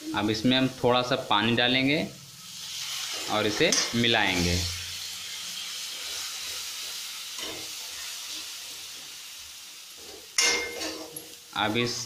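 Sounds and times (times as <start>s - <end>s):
masala paste sizzling in hot oil: 0.0s - 12.0s
spatula stirring in pan: 2.4s - 11.3s.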